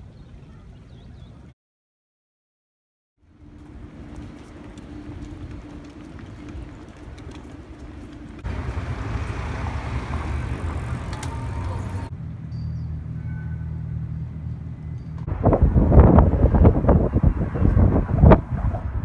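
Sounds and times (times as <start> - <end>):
traffic rumble: 3.2 - 19.0
wind buffeting microphone: 3.4 - 12.1, 15.2 - 19.0.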